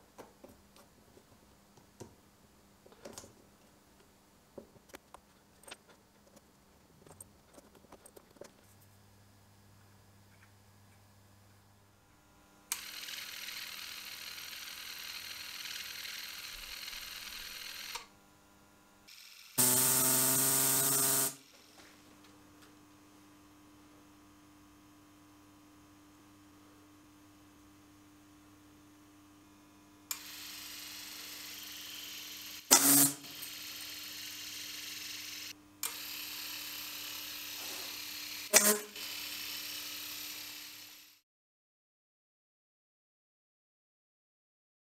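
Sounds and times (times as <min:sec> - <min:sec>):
toy motor whirring buzz: 0:12.7 - 0:18.2, 0:19.0 - 0:21.9, 0:30.1 - 0:41.2.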